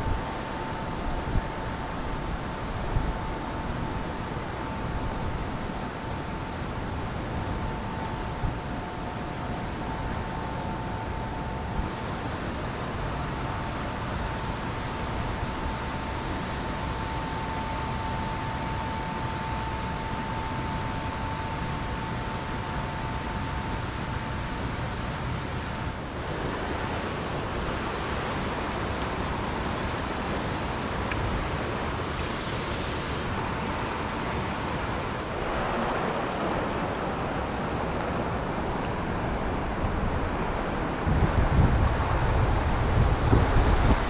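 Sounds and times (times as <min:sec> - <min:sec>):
river rushing over rocks: 0:25.2 - 0:44.0.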